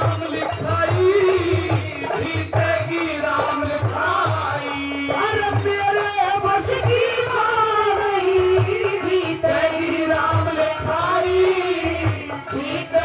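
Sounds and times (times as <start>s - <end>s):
drum beat: 0.0s - 13.0s.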